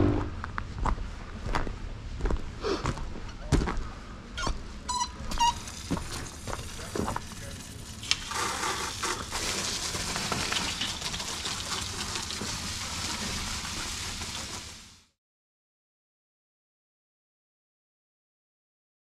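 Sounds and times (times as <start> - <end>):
hose spraying water: 5.4 - 15.2.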